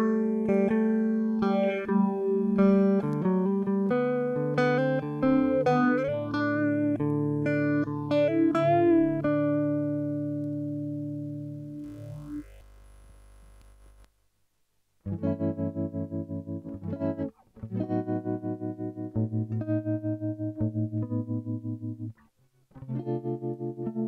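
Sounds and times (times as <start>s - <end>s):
electric guitar picked notes: 0.0s - 13.2s, 15.0s - 24.0s.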